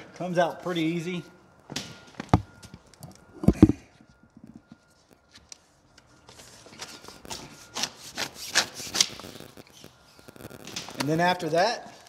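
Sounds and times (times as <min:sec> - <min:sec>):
rubber strip scraping: 0:07.7 - 0:10.0.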